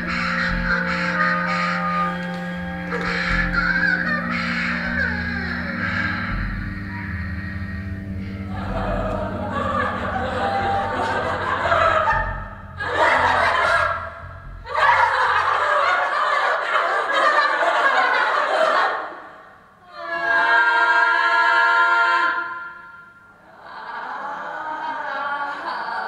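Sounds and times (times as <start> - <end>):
women laughing and shouting: 8.5 - 19.1.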